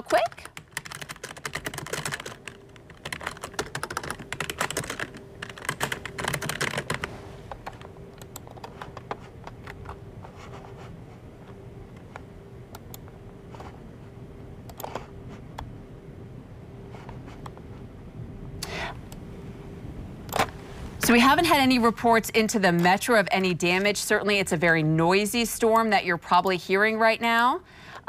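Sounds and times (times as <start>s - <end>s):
typing on computer keyboard: 0.0s - 10.0s.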